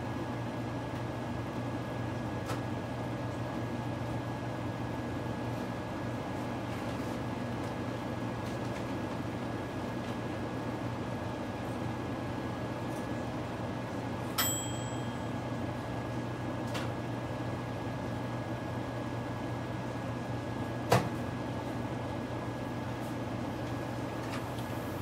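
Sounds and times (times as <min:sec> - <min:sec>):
kitchen appliance humming: 0:21.4 - 0:25.0.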